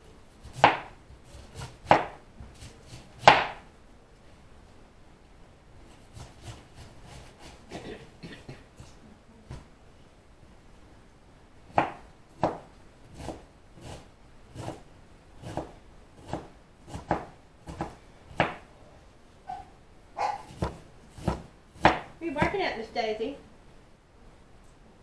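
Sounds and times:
dog barking: 0:19.5 - 0:20.5.

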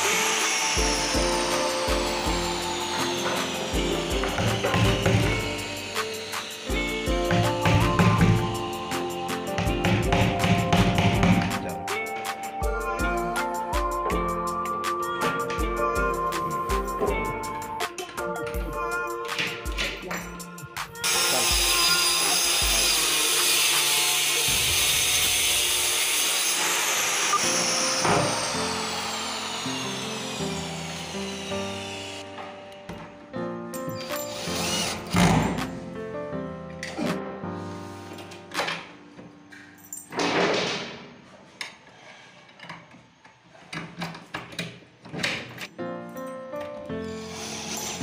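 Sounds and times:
background music with beat: 0:00.8 - 0:21.8
cordless drill into wood: 0:21.0 - 0:32.2, 0:34.0 - 0:35.4, 0:47.0 - 0:48.0.

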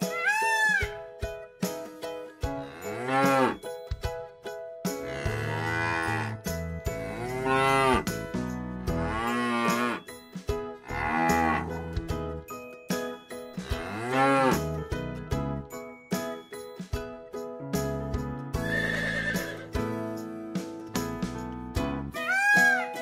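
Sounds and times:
light background music: 0:00.0 - 0:23.0
cattle mooing: 0:05.0 - 0:06.4, 0:07.0 - 0:08.0, 0:10.9 - 0:11.8.

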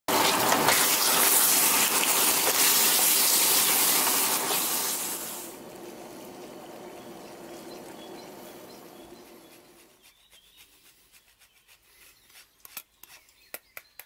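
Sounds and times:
vegetables sizzling in a pan: 0:00.1 - 0:09.5.

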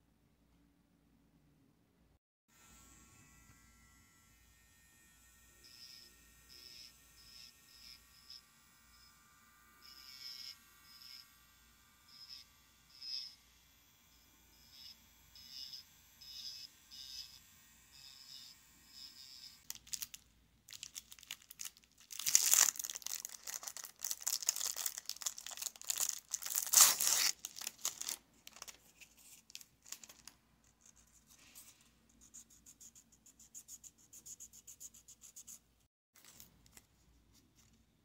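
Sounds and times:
nail buffer rasping on fingernail: 0:05.6 - 0:09.1, 0:09.8 - 0:11.3, 0:12.1 - 0:13.4, 0:14.6 - 0:17.4, 0:18.0 - 0:19.7
cellophane crinkling and tearing: 0:19.6 - 0:31.1.

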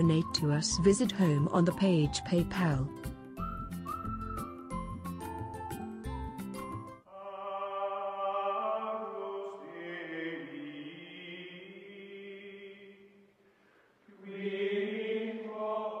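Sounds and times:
voices chanting drone: 0:14.1 - 0:16.0.

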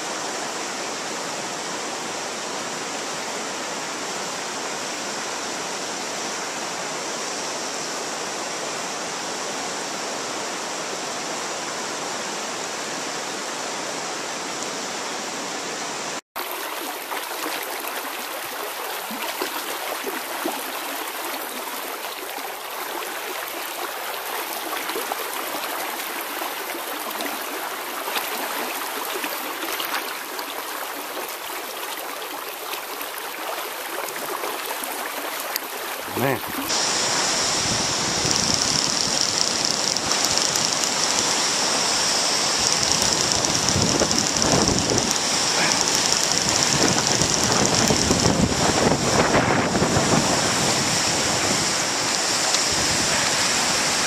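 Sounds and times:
river water rushing: 0:00.0 - 0:54.0
small water splashes: 0:16.4 - 0:37.2, 0:38.2 - 0:49.4.

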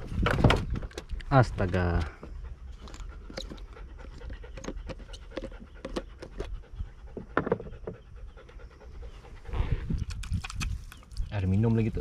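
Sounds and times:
dog panting: 0:01.6 - 0:09.7.

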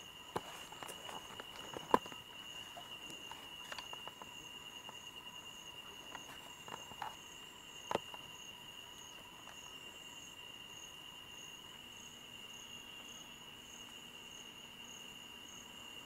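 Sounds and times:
insect continuous high trill: 0:00.0 - 0:16.0
insect pulsing call: 0:00.0 - 0:16.0.

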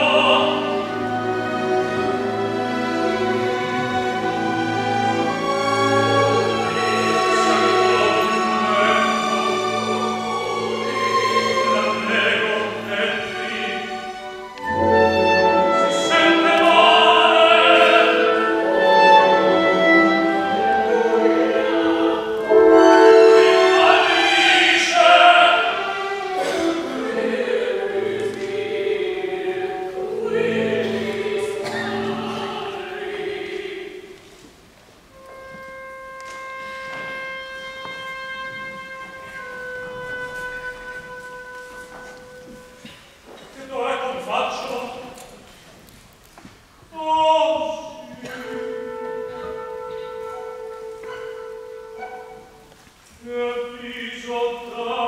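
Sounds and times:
operatic singing: 0:00.0 - 0:34.4, 0:46.9 - 0:55.0
orchestra playing: 0:00.0 - 0:45.2, 0:46.9 - 0:55.0.

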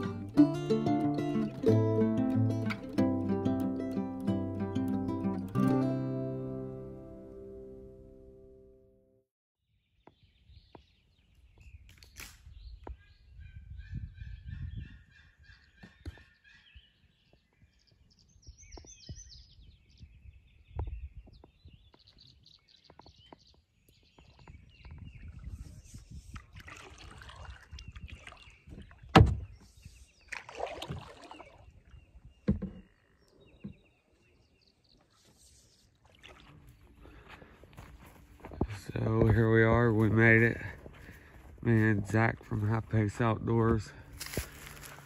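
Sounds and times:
birds singing: 0:09.8 - 0:45.0
rustling or splashing: 0:26.2 - 0:29.1, 0:30.2 - 0:32.0, 0:35.0 - 0:38.4.

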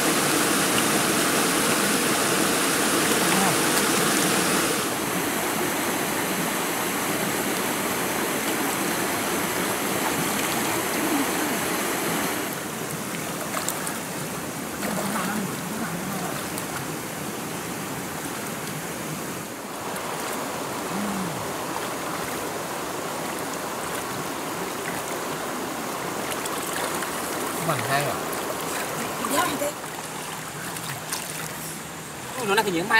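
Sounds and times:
river water rushing: 0:00.0 - 0:32.9.

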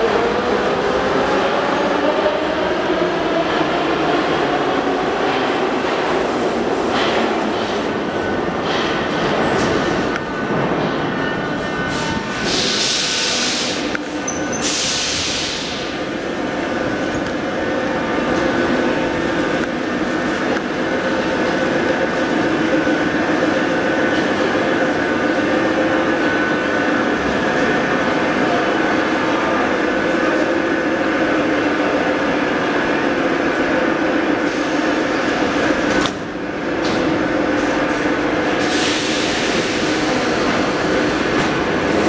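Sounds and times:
train machinery humming: 0:00.0 - 0:42.0
air hissing: 0:11.9 - 0:13.9, 0:14.6 - 0:16.0, 0:38.6 - 0:41.2.

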